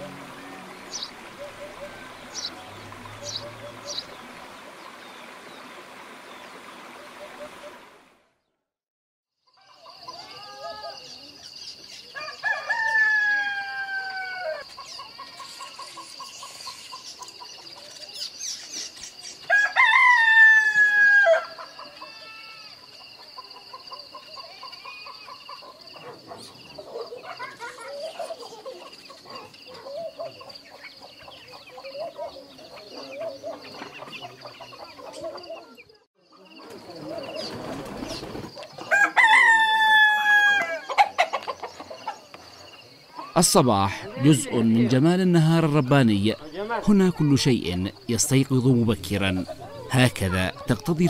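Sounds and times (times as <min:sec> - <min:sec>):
rooster crowing: 0:12.2 - 0:14.7, 0:19.5 - 0:22.8, 0:38.8 - 0:41.8
chicken clucking: 0:22.9 - 0:35.9, 0:40.8 - 0:42.5.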